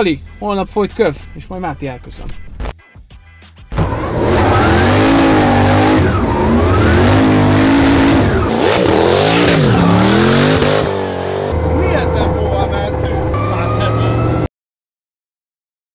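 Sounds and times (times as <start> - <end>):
car engine revving hard: 3.7 - 13.3.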